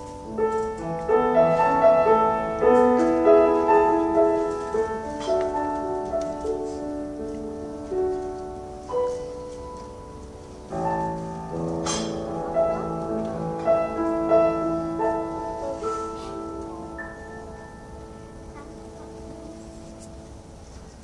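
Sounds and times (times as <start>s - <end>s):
grand piano chords: 0.0s - 21.0s.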